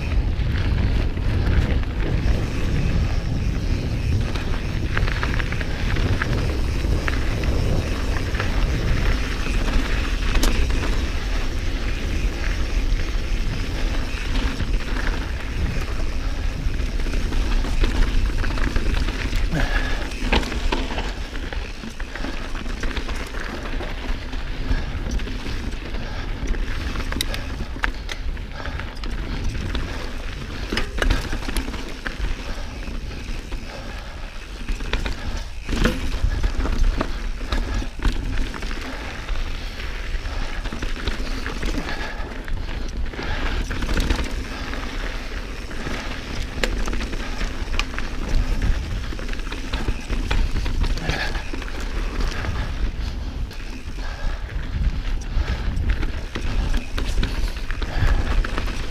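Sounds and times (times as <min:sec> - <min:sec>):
bike knocks and rattles: 0:00.0 - 0:39.3
bike tyres on rocky dirt: 0:00.0 - 0:58.9
wind rumble on microphone: 0:00.0 - 0:58.9.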